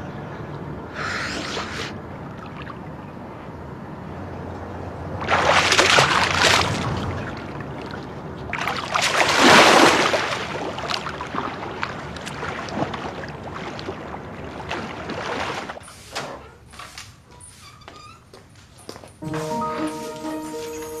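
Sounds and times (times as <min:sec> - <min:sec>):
water splashing from swimming: 0:05.1 - 0:16.0.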